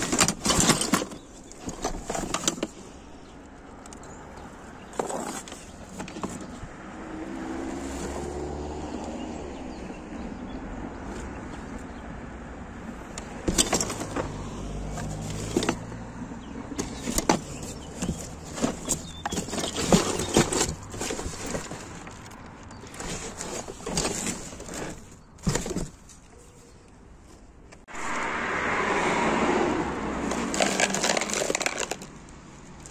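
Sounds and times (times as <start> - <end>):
rustling and scraping of cardboard: 0.0 - 3.3, 4.8 - 6.7, 7.6 - 8.5, 12.8 - 16.1, 16.7 - 27.8, 30.3 - 32.1.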